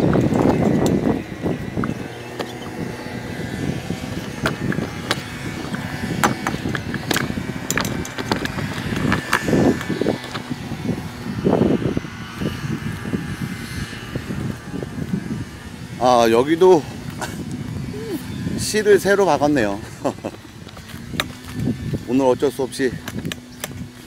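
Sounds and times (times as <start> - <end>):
golf cart running: 0.0 - 24.0
golf cart rattles and knocks: 4.2 - 10.6.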